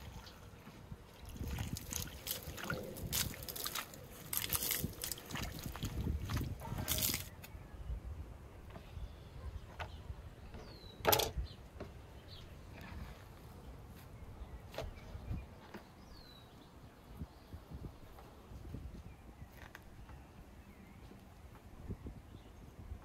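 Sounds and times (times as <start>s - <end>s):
herbs rustling on wooden board: 6.4s - 7.3s.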